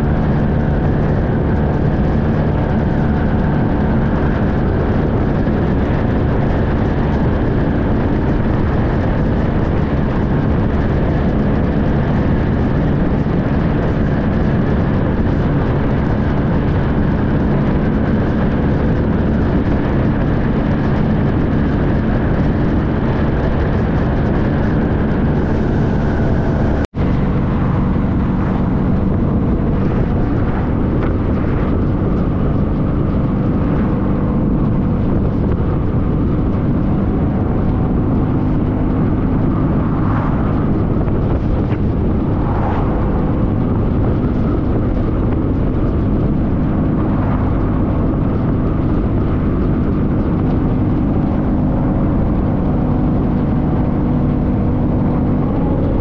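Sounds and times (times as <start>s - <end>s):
motorcycle engine running: 0.0s - 56.0s
wind rushing: 0.0s - 56.0s.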